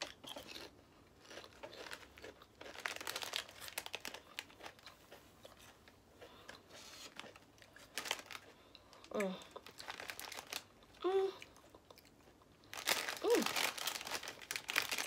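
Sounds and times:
chips crunched and chewed: 0:00.0 - 0:05.8, 0:06.4 - 0:15.0
plastic bag crinkling: 0:01.2 - 0:04.8, 0:07.1 - 0:09.0, 0:09.6 - 0:10.8, 0:12.7 - 0:15.0.

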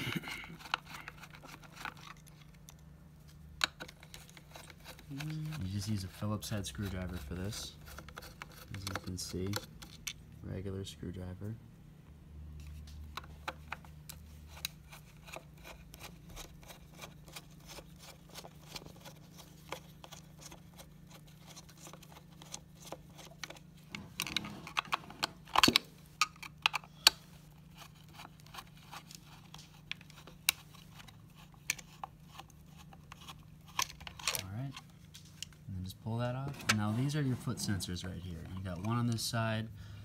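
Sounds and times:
screwdriver clicking and scraping: 0:00.1 - 0:02.8, 0:03.6 - 0:05.1, 0:06.8 - 0:10.2, 0:13.1 - 0:35.6.

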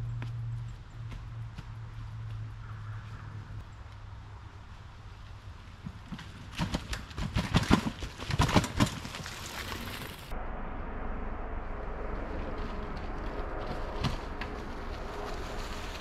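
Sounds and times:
steady outdoor hiss: 0:00.0 - 0:07.3, 0:09.3 - 0:16.0
bike knocking and rattling over rocks: 0:05.8 - 0:10.3.

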